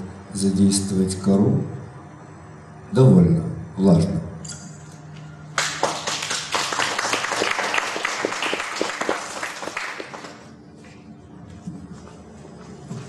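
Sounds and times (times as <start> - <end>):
audience applauding: 5.5 - 10.6.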